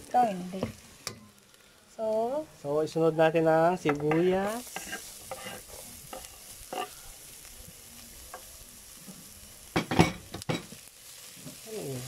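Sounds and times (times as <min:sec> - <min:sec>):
onion sizzling in oil: 0:00.0 - 0:12.0
metal ladle scraping a pot: 0:04.1 - 0:07.0.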